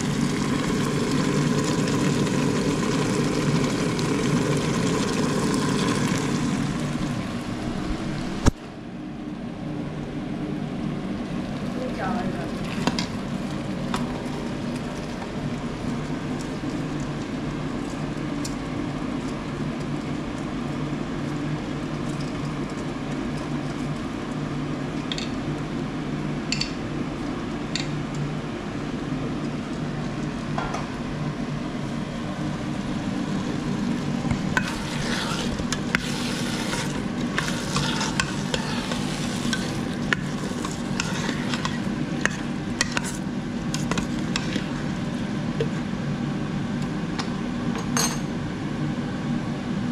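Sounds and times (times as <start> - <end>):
food sizzling in pot: 0.0 - 8.5, 32.7 - 45.3
steady low hum: 0.0 - 49.9
ladle scraping and clinking pot: 34.3 - 44.8.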